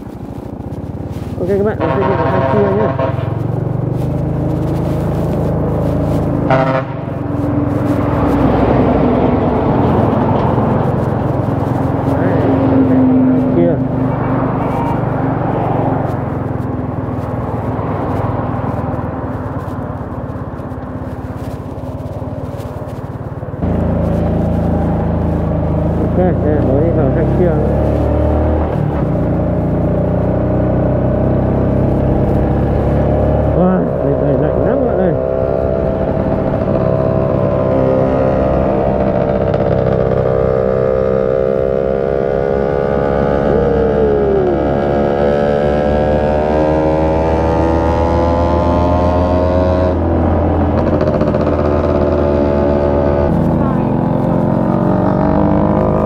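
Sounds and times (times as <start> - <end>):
motorcycle engine cruising: 0.0 - 56.0
road and wind noise: 0.0 - 56.0.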